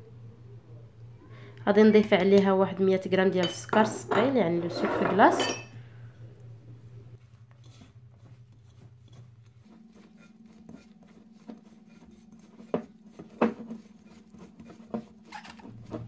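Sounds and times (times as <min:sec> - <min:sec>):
hands kneading butter: 0:07.2 - 0:16.0.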